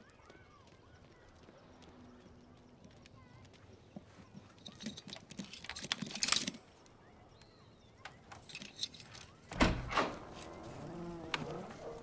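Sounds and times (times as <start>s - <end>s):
lock picking clicks and rattles: 4.6s - 6.6s, 8.3s - 10.1s.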